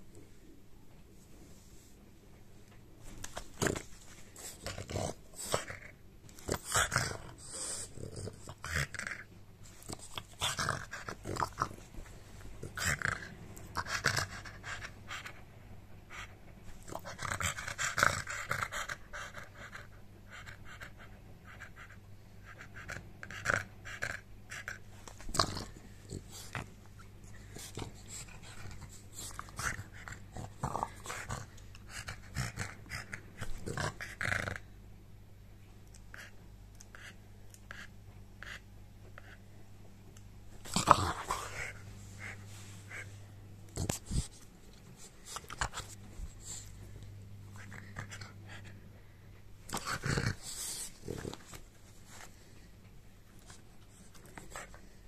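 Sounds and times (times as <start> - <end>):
dog snorting and grunting: 3.5 - 11.9, 22.4 - 26.8, 27.5 - 34.7, 40.6 - 43.1, 49.7 - 51.6.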